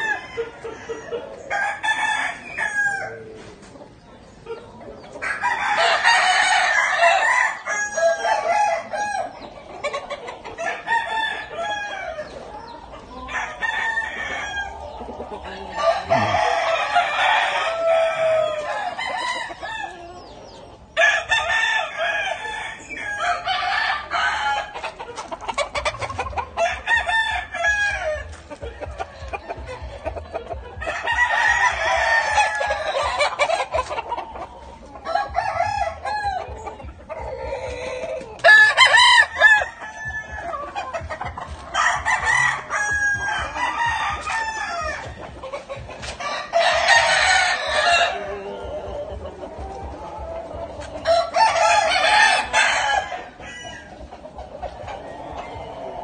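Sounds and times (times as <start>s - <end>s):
roosters crowing: 0.0s - 3.6s, 4.9s - 56.0s.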